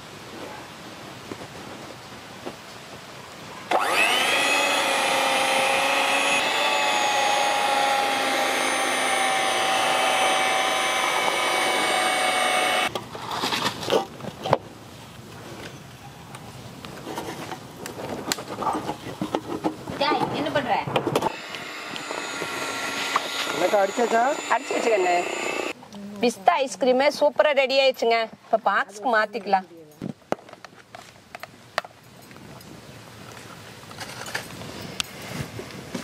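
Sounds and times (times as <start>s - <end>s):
electric hand mixer whining: 3.7s - 12.9s, 21.3s - 25.8s.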